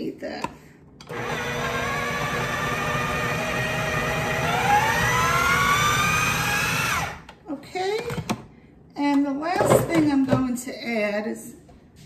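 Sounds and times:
food processor motor whine: 1.0s - 7.3s.

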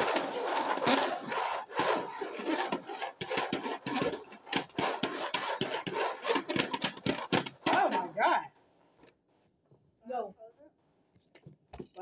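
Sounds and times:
plastic bowls scraping on wooden table: 0.0s - 8.2s
plastic bowls knocking and clattering: 2.6s - 7.9s.

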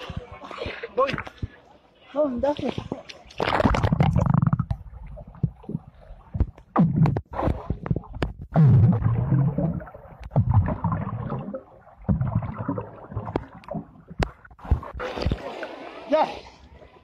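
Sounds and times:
underwater rumbling water: 2.8s - 16.1s
bubbles underwater: 3.4s - 15.7s.

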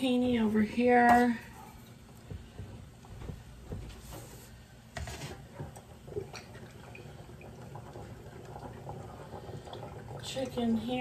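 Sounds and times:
pot of water simmering: 4.5s - 11.0s.

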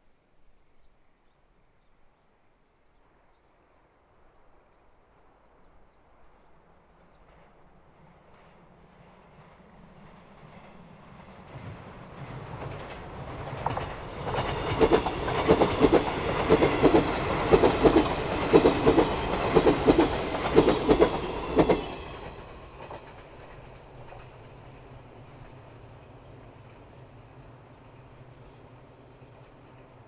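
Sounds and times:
electric train passing: 7.3s - 30.0s.

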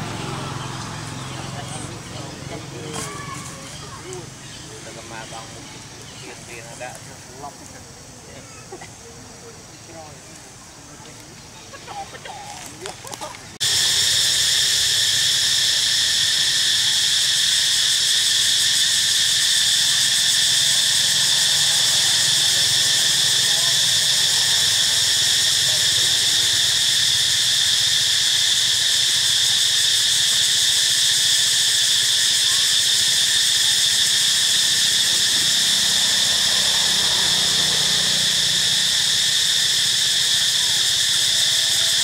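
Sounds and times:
insect chorus drone: 0.0s - 42.0s.

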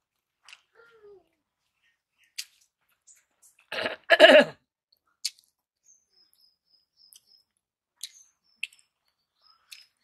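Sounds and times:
mouth clicks and smacks chewing: 2.2s - 3.8s, 4.9s - 5.7s, 7.0s - 10.0s.

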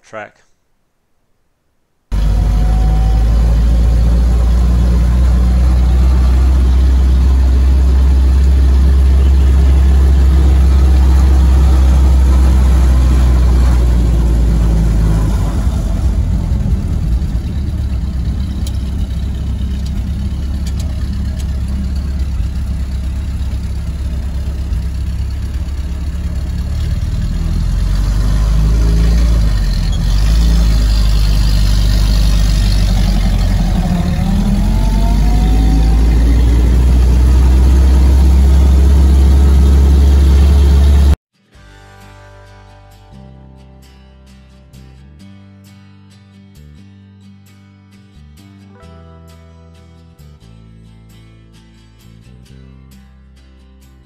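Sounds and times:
car engine droning: 2.1s - 41.2s
rising whine: 2.1s - 41.2s.

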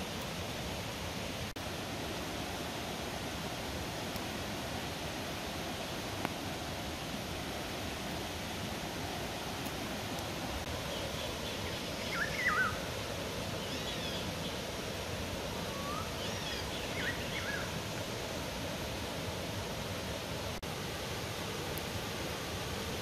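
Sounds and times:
fast stream rushing: 0.0s - 23.0s
small bird chirping: 10.9s - 12.8s, 13.6s - 14.6s, 15.7s - 17.7s.

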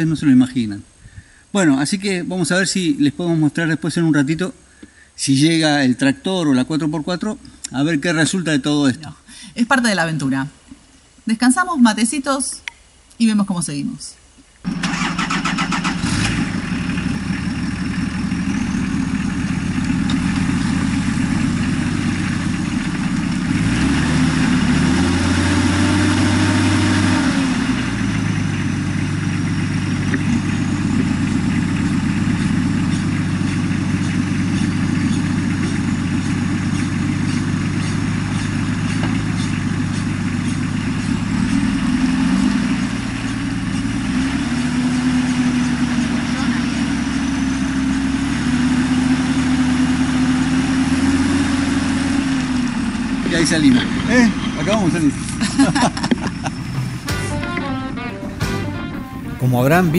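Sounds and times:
four-wheel-drive truck engine: 14.6s - 59.9s
backhoe loader engine: 14.7s - 59.9s.

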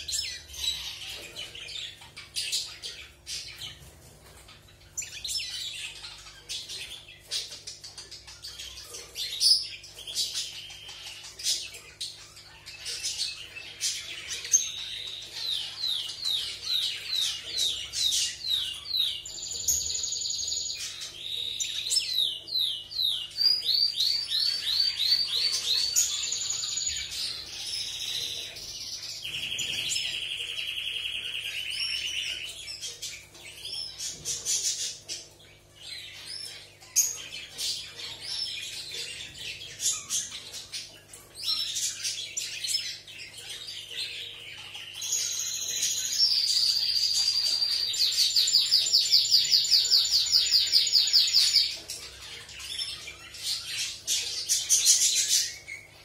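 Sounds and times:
finch singing trills and chirps: 0.0s - 56.0s.

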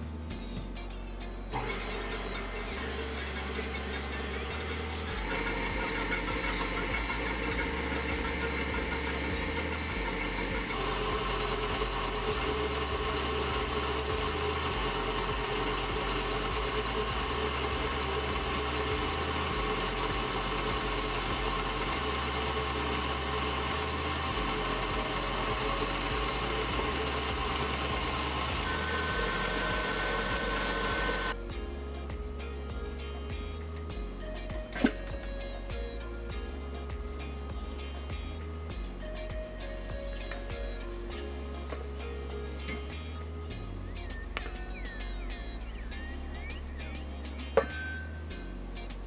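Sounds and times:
stand mixer motor whir: 1.5s - 31.4s.

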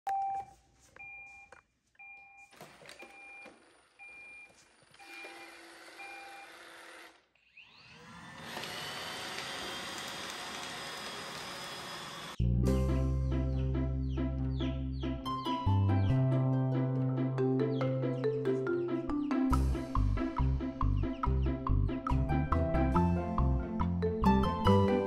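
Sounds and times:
robot vacuum beeping: 3.0s - 7.8s
vacuum motors whining: 3.4s - 12.4s.

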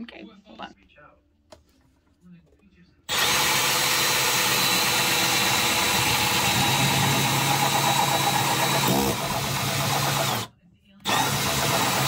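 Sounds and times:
drill cutting through wood: 3.1s - 12.0s.

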